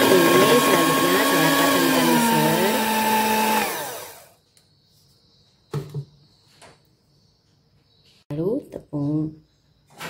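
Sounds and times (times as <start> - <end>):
electric hand mixer running: 0.0 - 4.4.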